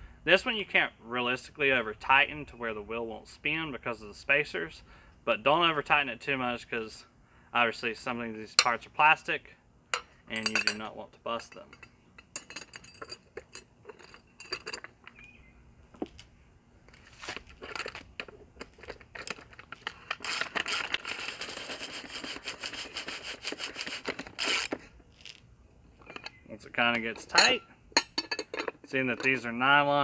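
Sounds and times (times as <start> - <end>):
metal parts clinking: 9.9 - 15.2, 16.9 - 24.8, 25.9 - 29.6.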